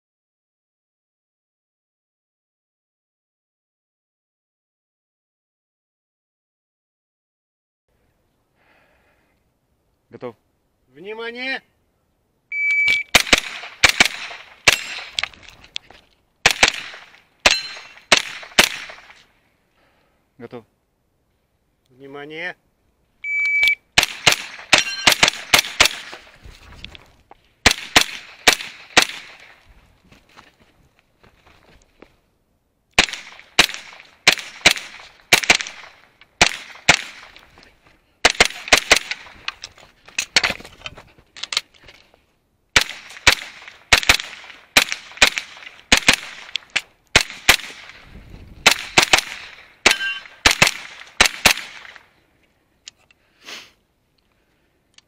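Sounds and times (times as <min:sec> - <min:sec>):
shot timer beep: 0:12.5 - 0:13.1, 0:23.2 - 0:23.8, 0:49.9 - 0:50.3
rapid gunshots: 0:13.1 - 0:15.2, 0:16.4 - 0:19.1, 0:24.0 - 0:26.2, 0:27.6 - 0:29.5, 0:33.0 - 0:37.4, 0:38.2 - 0:39.4, 0:42.8 - 0:46.6, 0:47.2 - 0:48.0, 0:48.6 - 0:52.0.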